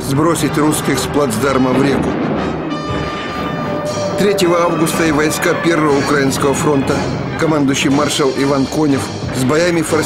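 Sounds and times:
background music: 0.0s - 10.0s
held tone: 2.8s - 6.9s.

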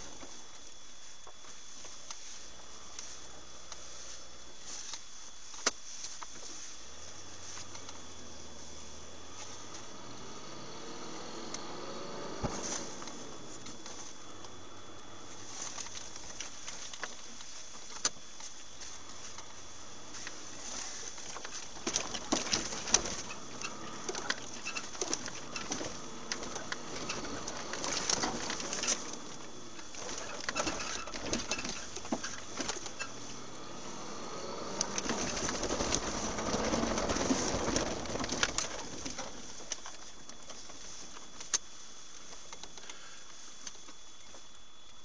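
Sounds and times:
faint high whine: 0.0s - 45.0s
knocks and rattles in vehicle cabin: 12.3s - 41.3s.

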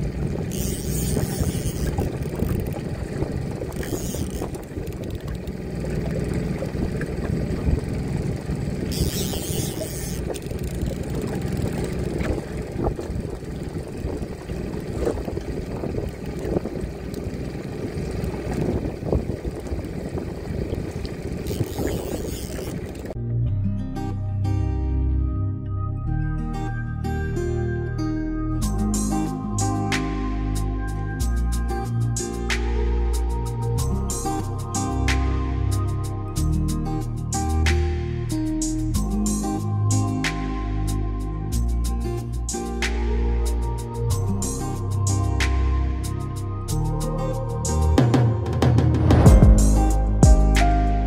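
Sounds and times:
wind rumbling on microphone: 0.0s - 23.2s
boat motor running: 0.0s - 23.4s.

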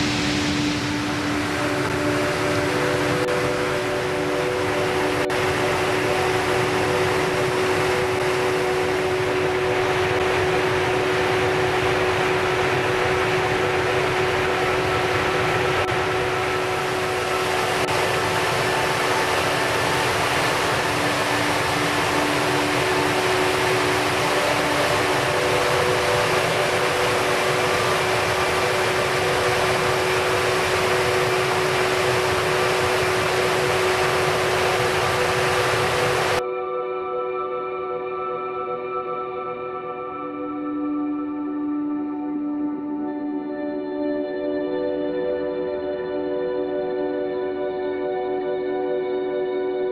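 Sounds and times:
stream and waterfalls rushing: 0.0s - 36.4s.

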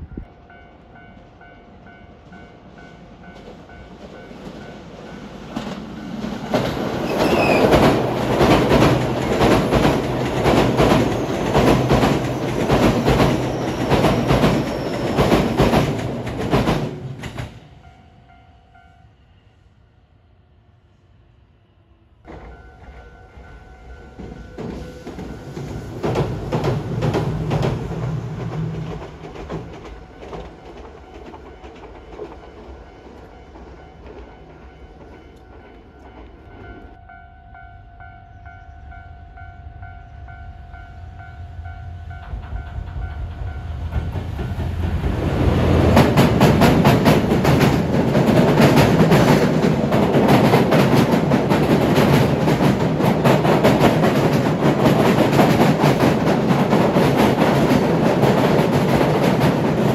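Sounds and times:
tram passing: 0.0s - 59.9s
train wheels clattering on bridge: 3.3s - 17.6s, 24.1s - 36.7s, 42.2s - 59.9s.

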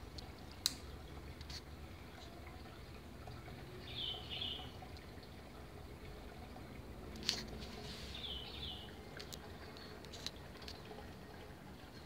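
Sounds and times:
ceiling fan humming: 0.0s - 12.0s
bird chirping: 3.8s - 4.7s, 8.1s - 8.9s.

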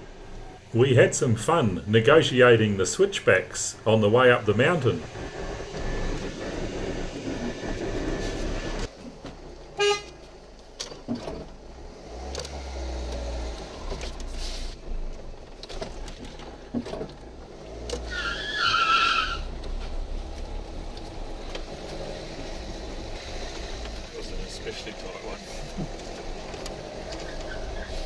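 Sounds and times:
car engine and road rumble: 0.0s - 28.0s
car horn: 9.8s - 10.2s.

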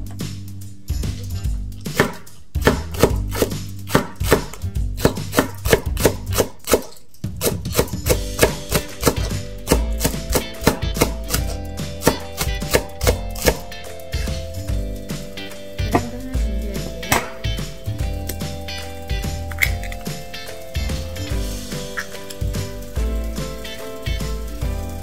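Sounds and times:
knife striking a wooden board: 1.8s - 13.7s, 17.1s - 17.5s.

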